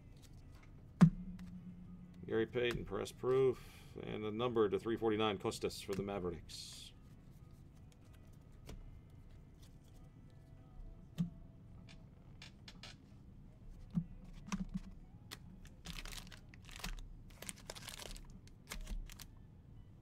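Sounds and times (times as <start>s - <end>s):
wrappers ripped open: 15.6s - 19.3s.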